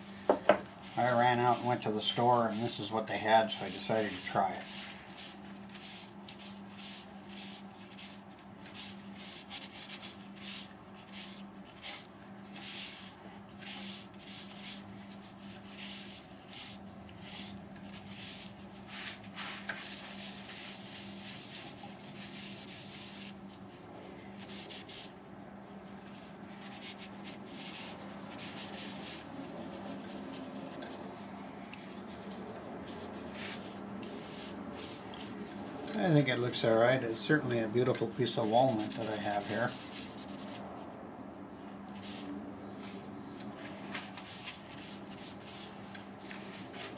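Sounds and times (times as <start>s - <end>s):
steady low hum: 0.0s - 46.9s
rag rubbing wooden bowl: 0.8s - 19.2s, 37.4s - 40.6s.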